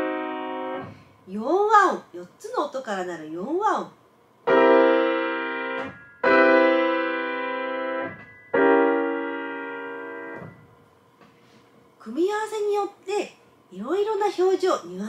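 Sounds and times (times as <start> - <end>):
grand piano chords: 0.0 - 1.3, 4.4 - 11.0.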